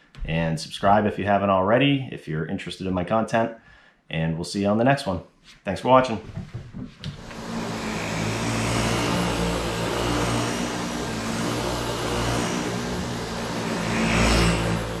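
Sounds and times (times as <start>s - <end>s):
vacuum cleaner whirring on carpet: 7.1s - 15.0s.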